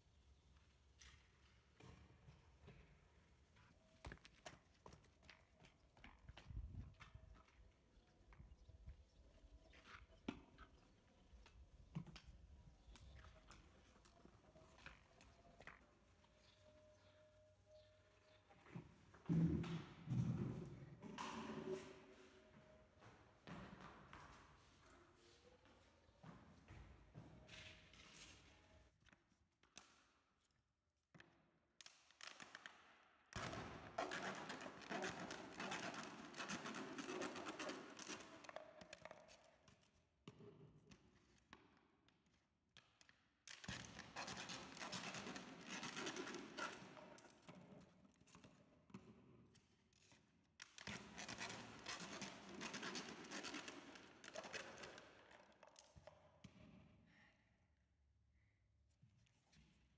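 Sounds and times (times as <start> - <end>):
knife sawing plastic bottle: 34.0 - 38.3.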